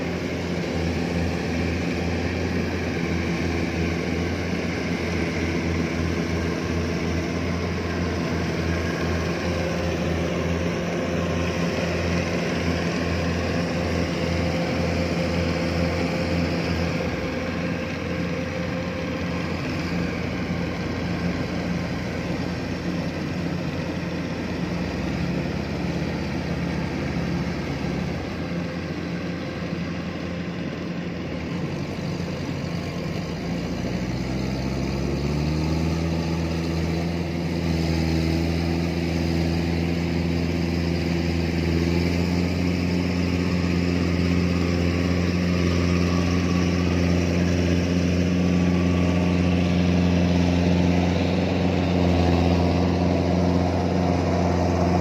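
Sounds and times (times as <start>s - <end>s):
combine harvester diesel engine: 0.0s - 55.0s
machinery noise: 0.0s - 55.0s.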